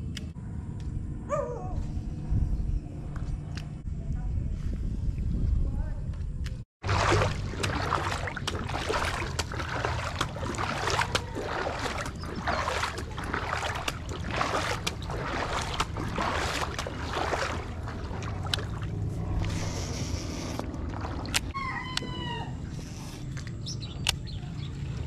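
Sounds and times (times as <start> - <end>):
steady low rumble: 0.0 - 25.0
water splashing and sloshing: 6.8 - 25.0.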